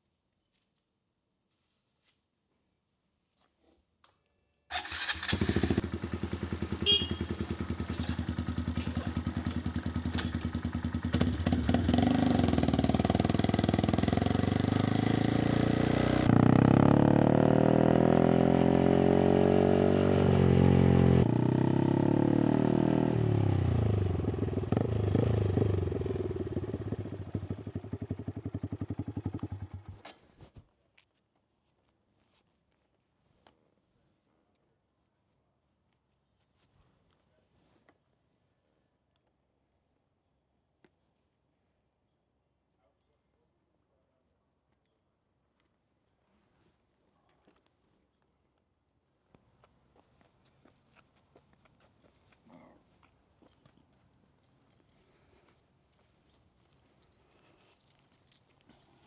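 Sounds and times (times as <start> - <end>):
motorcycle engine starting and idling: 4.7 - 30.2
motorcycle engine revving: 4.8 - 30.0.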